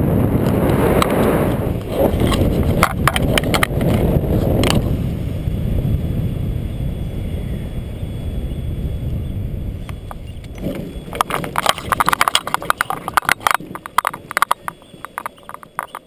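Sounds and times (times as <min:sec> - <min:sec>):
wheels knocking and frame rattling: 0:00.0 - 0:05.0, 0:09.8 - 0:16.0
wind rushing over microphone: 0:00.0 - 0:16.0.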